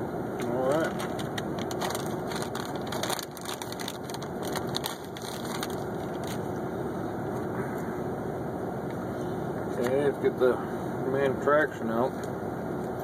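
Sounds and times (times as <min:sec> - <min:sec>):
low background hum: 0:00.0 - 0:13.0
dry crunching and crackling: 0:00.4 - 0:06.6.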